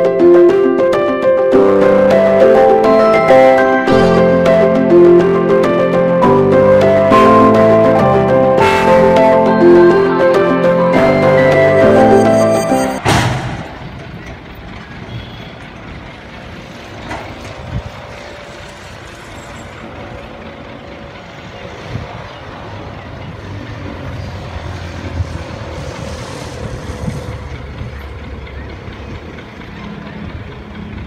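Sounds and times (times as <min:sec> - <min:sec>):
distant engine running: 0:13.0 - 0:31.0.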